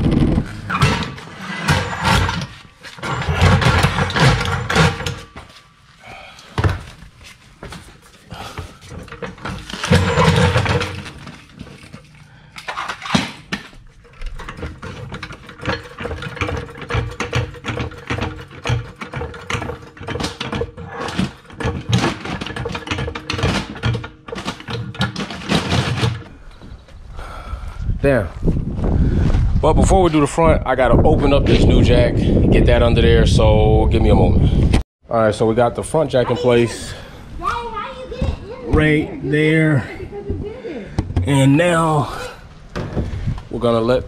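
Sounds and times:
floor jack rattling on concrete: 0.1 - 5.4, 8.5 - 12.0, 12.6 - 26.3.

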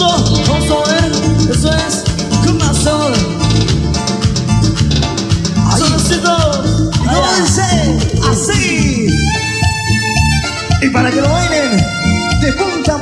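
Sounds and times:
cumbia band music: 0.0 - 13.0
repeating bass line: 0.0 - 13.0
shaker percussion: 0.0 - 13.0
sliding guitar or keyboard lines: 0.0 - 13.0.

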